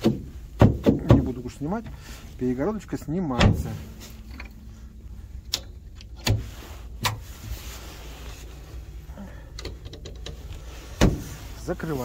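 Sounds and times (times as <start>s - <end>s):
sharp knocks: 0.0s - 1.4s
low steady rumble: 0.0s - 12.0s
light clicks of fittings: 9.5s - 10.7s.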